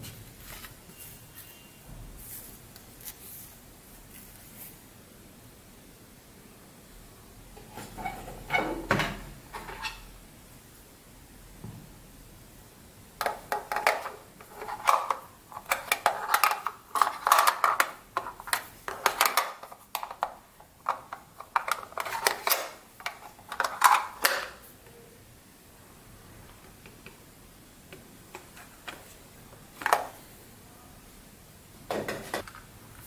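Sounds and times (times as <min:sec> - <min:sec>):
plastic parts clicking together: 0:13.2 - 0:24.6.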